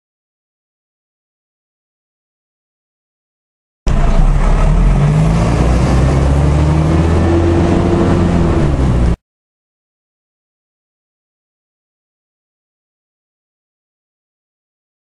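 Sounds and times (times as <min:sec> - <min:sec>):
vehicle engine rumbling: 0:03.9 - 0:09.2.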